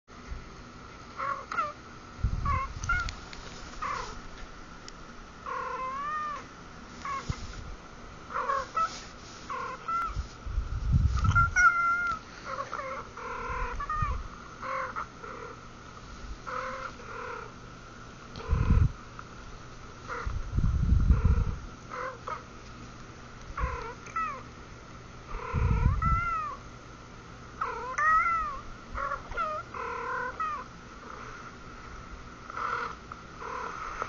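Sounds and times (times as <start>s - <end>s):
cats meowing: 2.4s - 3.2s, 5.5s - 7.4s, 11.2s - 15.5s, 23.6s - 24.4s, 25.3s - 26.6s, 27.6s - 30.7s.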